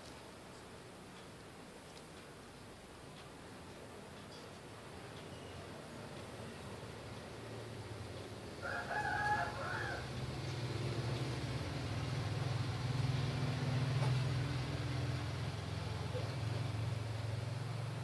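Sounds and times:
low engine hum: 6.7s - 18.0s
rooster crowing: 8.6s - 10.2s.

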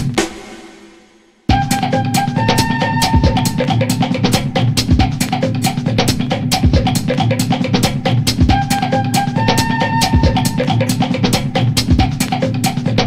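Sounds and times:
fast drum beat: 0.0s - 0.9s, 1.5s - 13.0s
held instrument notes: 1.5s - 4.7s, 8.5s - 11.5s.

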